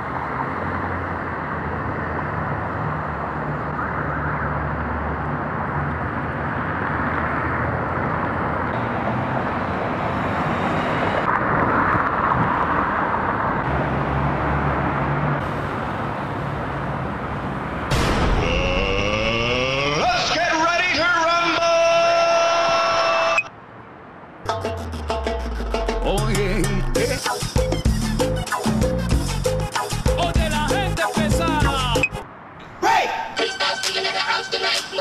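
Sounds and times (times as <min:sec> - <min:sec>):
passing vehicles rushing: 0:00.0 - 0:33.3
low engine rumble: 0:24.5 - 0:28.2.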